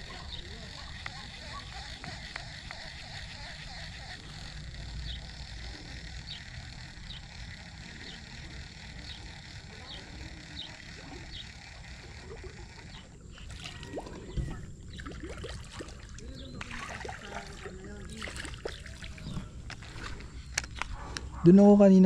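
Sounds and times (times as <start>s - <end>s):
lure splashing on water: 10.7s - 20.3s.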